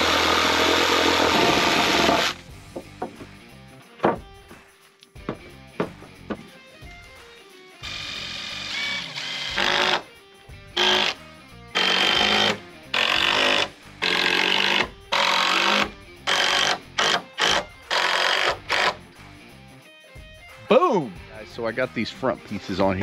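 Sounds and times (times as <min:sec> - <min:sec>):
cordless drill driving screws into wood: 0:00.0 - 0:02.4, 0:07.8 - 0:10.0, 0:10.8 - 0:11.2, 0:11.8 - 0:19.0.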